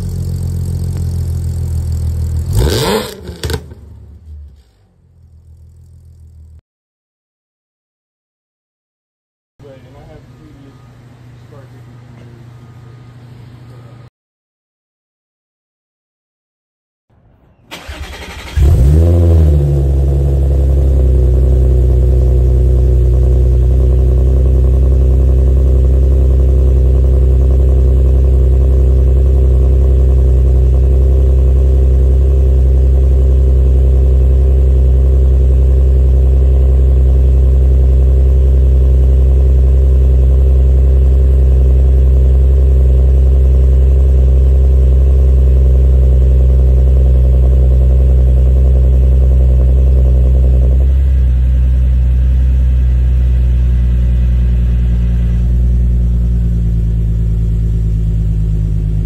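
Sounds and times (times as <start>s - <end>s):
car engine cranking: 0.0s - 6.5s, 17.7s - 19.8s
car engine revving and idling: 0.0s - 6.6s, 17.8s - 59.0s.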